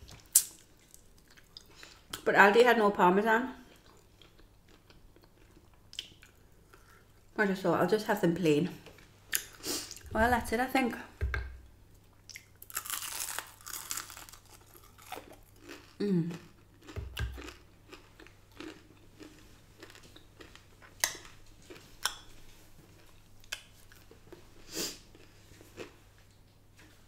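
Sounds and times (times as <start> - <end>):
crunchy food chewing: 3.7 - 7.3, 12.3 - 22.3.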